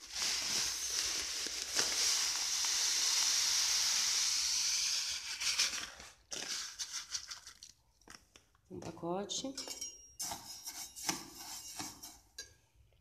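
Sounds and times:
pellets pouring into water: 0.0s - 7.8s.

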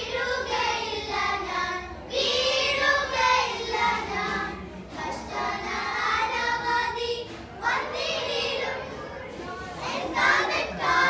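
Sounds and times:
children singing together: 0.0s - 11.0s.

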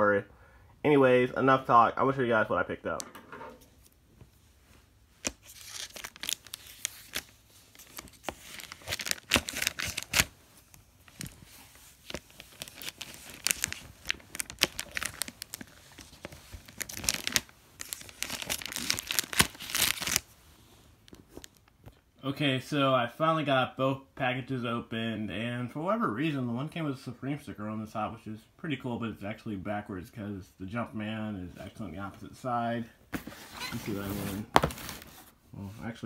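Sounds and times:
plastic mailer tearing and crinkling: 5.2s - 10.4s, 11.0s - 20.3s.

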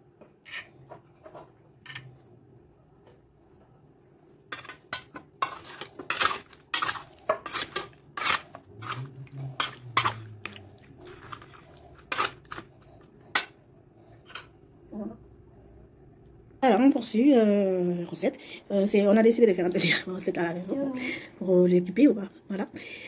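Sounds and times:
spoon scraping metal bowl: 4.6s - 12.7s.

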